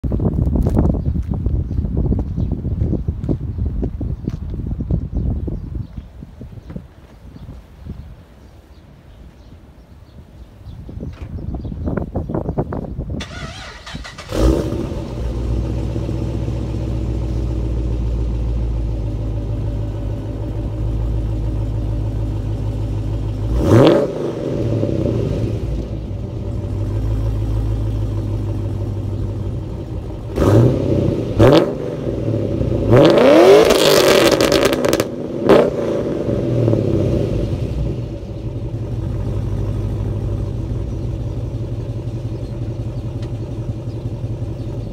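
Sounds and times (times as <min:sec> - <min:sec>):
car engine idling with throttle blips: 0:13.5 - 0:44.9.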